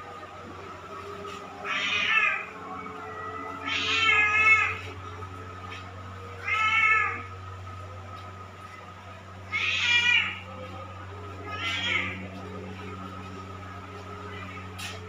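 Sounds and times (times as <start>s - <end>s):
cat meowing: 1.6s - 2.5s, 3.6s - 4.8s, 6.4s - 7.3s, 9.5s - 10.4s, 11.4s - 12.2s.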